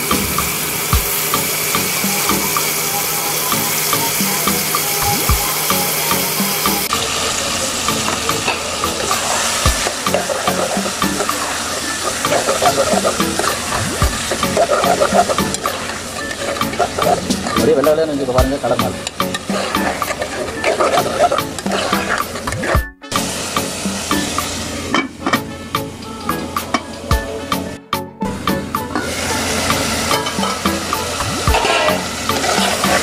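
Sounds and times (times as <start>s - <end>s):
food sizzling in hot oil: 0.0s - 18.0s, 18.6s - 22.5s, 23.1s - 25.0s, 29.0s - 33.0s
metal spoon scraping a pot: 19.0s - 22.7s, 31.5s - 33.0s.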